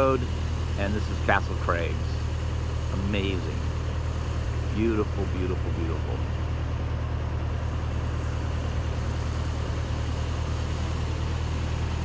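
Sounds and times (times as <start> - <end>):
vehicle engine humming: 0.0 - 12.0.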